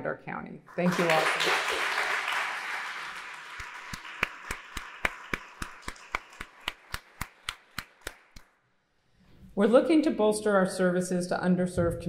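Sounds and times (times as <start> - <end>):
audience applause: 0.7 - 8.4
person clapping steadily: 0.8 - 8.6.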